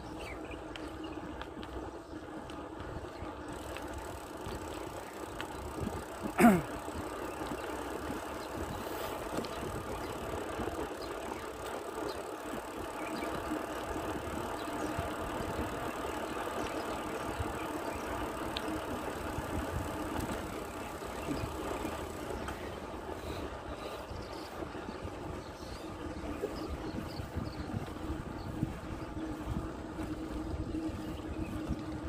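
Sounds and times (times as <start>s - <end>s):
bicycle rolling: 0.0s - 32.0s
wind noise: 19.2s - 32.0s.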